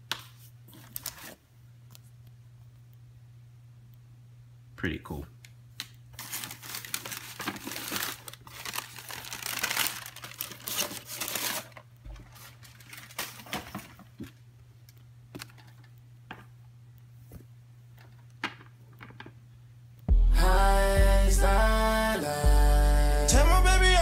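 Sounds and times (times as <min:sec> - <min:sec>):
steady low hum: 0:00.0 - 0:24.0
tissue paper crinkling: 0:00.4 - 0:01.4, 0:06.1 - 0:14.4.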